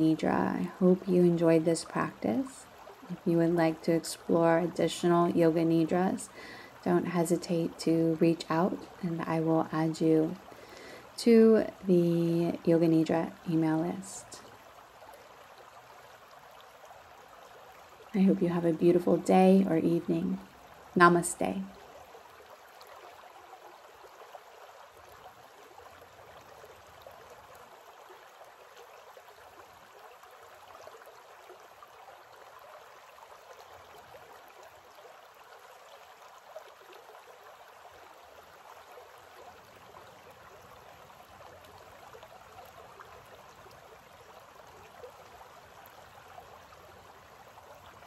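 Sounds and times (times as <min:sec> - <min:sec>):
creek water flowing over stones: 0:00.0 - 0:48.0.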